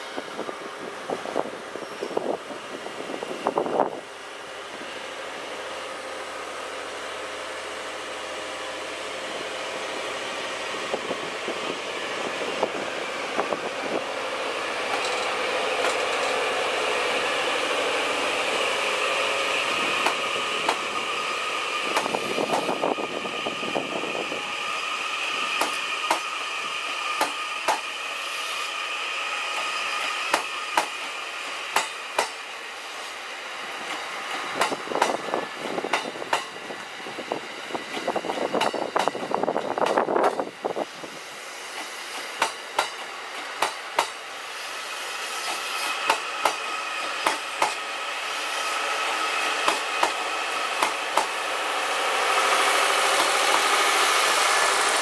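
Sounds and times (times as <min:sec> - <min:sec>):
diesel generator engines running: 0:48.8 - 0:55.0.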